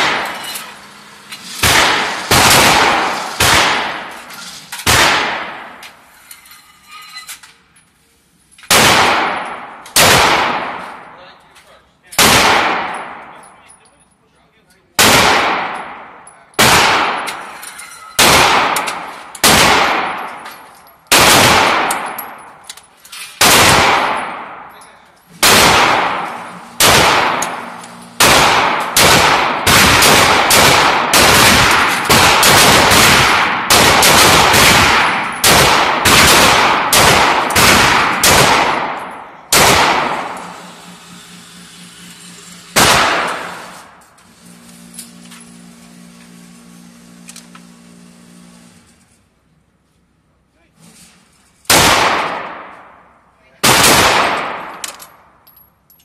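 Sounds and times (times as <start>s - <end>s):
pistol shots indoors: 1.6s - 4.1s, 4.8s - 5.8s, 8.7s - 11.1s, 12.2s - 13.4s, 15.0s - 17.4s, 18.2s - 20.4s, 21.1s - 22.4s, 23.4s - 24.7s, 25.4s - 40.5s, 42.8s - 43.9s, 51.7s - 55.4s.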